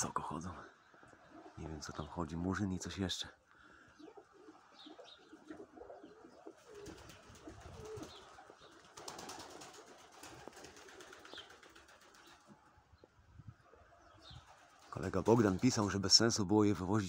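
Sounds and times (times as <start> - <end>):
pigeons cooing: 1.0 - 1.6, 3.6 - 15.9.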